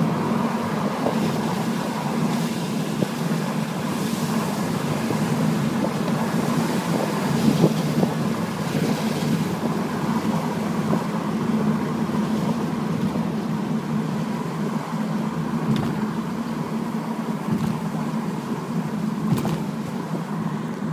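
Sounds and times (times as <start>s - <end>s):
car engine and road drone: 0.0s - 20.9s
tyres hissing on wet road: 0.0s - 20.9s.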